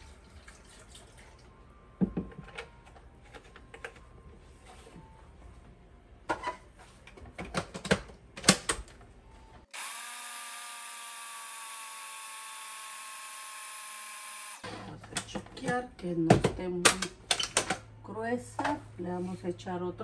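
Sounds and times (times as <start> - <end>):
blender motor whining: 9.7 - 14.7.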